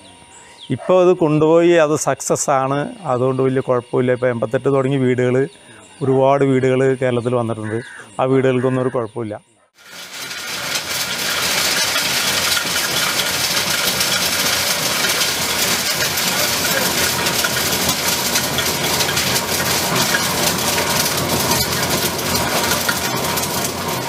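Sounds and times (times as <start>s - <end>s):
machinery gritty rattling: 9.8s - 24.0s.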